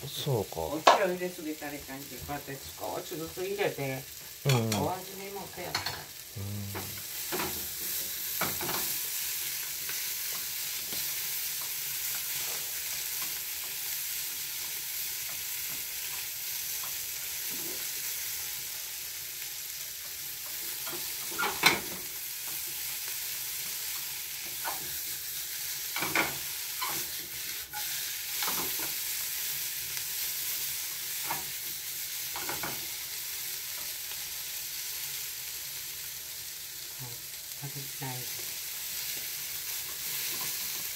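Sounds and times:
food sizzling in a frying pan: 0.0 - 40.9.

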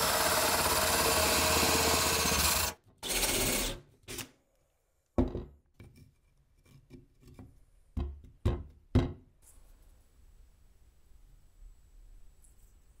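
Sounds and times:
power tool grinding: 0.0 - 3.8.

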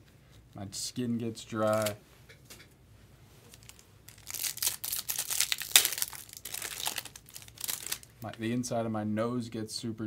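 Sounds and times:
foil wrapper tearing and crinkling: 3.5 - 8.2.

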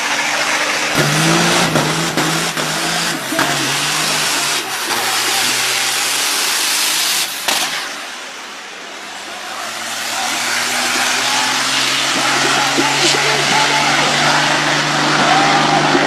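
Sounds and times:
heavy rushing noise: 0.0 - 16.0
truck engines running: 0.0 - 16.0
sharp cracks: 0.9 - 8.1.

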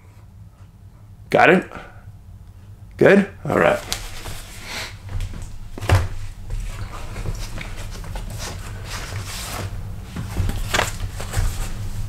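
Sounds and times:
steady low hum: 0.0 - 12.0
soft rustles and taps: 3.8 - 12.0.

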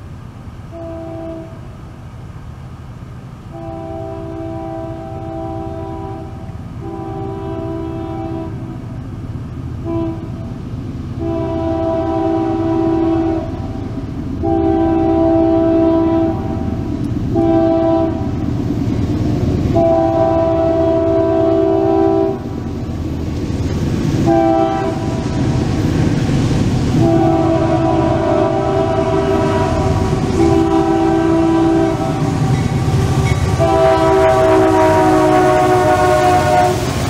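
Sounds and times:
locomotive rumble: 0.0 - 37.0
locomotive air horn blasts: 0.7 - 1.7, 3.5 - 8.8, 9.8 - 10.6, 11.2 - 18.5, 19.7 - 22.7, 24.2 - 25.6, 26.9 - 37.0.

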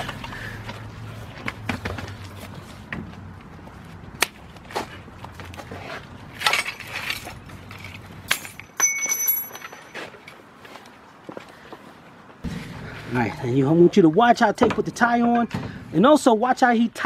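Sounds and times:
wheel knocks and metal clinks: 6.4 - 10.4.

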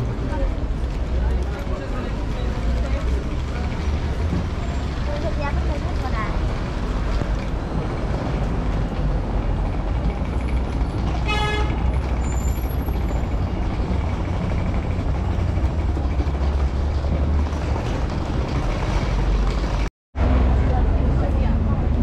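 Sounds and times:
city traffic rumbling: 0.0 - 22.0
short tonal horn toot: 11.2 - 11.8.

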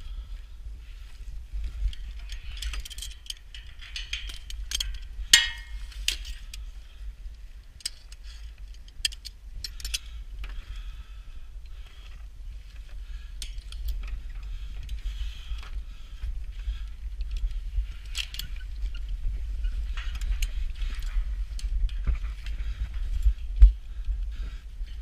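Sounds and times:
wind rumbling on microphone: 0.0 - 25.0
metallic clinks and clanks: 1.8 - 6.6, 7.8 - 10.1.

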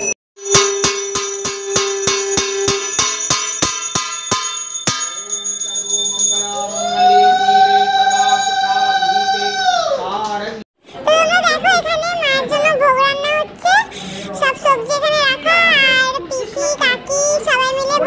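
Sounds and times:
conch shell blown: 0.4 - 3.4
hand bell rung rapidly: 0.5 - 6.8.

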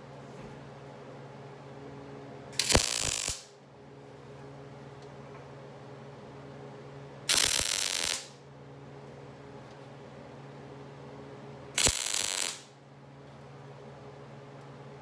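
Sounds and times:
steady low hum: 0.0 - 15.0
welding arc bursts: 2.6 - 3.5, 7.3 - 8.4, 11.8 - 12.7.

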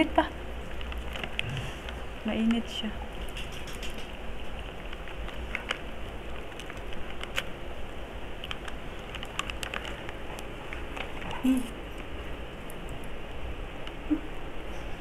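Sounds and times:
steady low hum: 0.0 - 15.0
chewing crunchy food: 0.6 - 7.6, 8.3 - 13.1.

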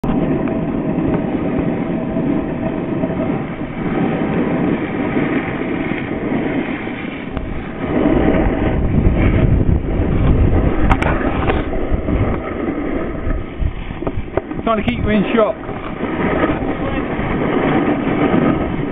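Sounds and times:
snowboard scraping over snow: 0.0 - 18.9
wind buffeting microphone: 0.0 - 18.9.

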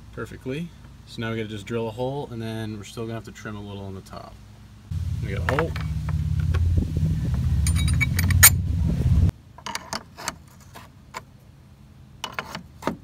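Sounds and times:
steady low rumble: 4.9 - 9.3
metal hardware clinking: 5.2 - 6.7, 7.3 - 8.7.

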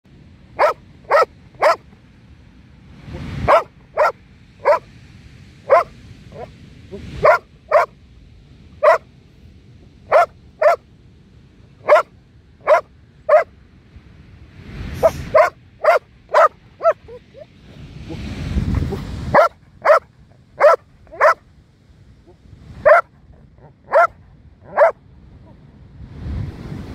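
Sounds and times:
dog barking: 0.6 - 1.8, 3.5 - 4.9, 5.7 - 6.5, 7.2 - 7.9, 8.8 - 9.0, 10.1 - 10.8, 11.8 - 13.5, 15.0 - 17.5, 18.9 - 21.4, 22.8 - 25.0
rushing noise: 14.3 - 21.4.

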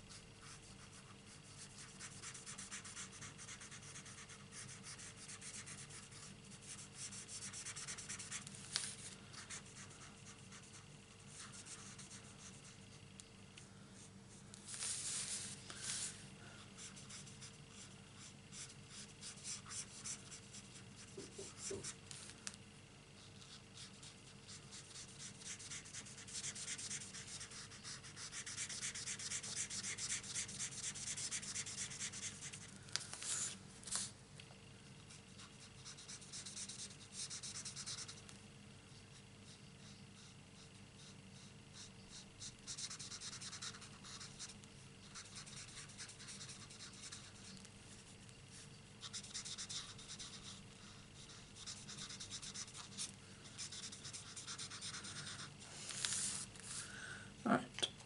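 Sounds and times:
marker scratching across cardstock: 24.7 - 32.6, 45.1 - 47.5, 49.0 - 50.6.

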